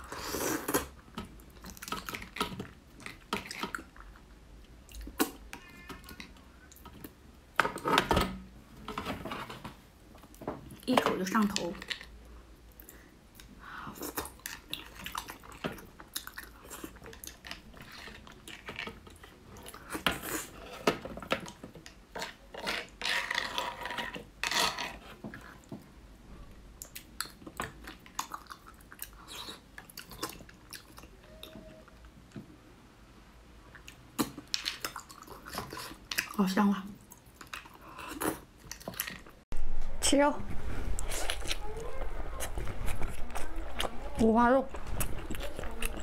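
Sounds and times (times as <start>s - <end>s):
wet chewing and lip smacks: 12.7s - 18.6s, 26.8s - 31.2s, 41.0s - 46.0s.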